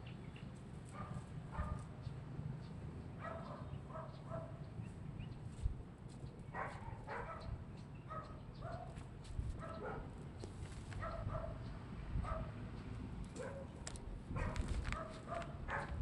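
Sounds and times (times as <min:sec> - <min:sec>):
dog barking in high yaps: 0:01.0 - 0:01.8, 0:03.2 - 0:04.6, 0:06.6 - 0:07.5, 0:08.1 - 0:09.0, 0:09.6 - 0:10.1, 0:11.0 - 0:11.6, 0:14.4 - 0:16.0.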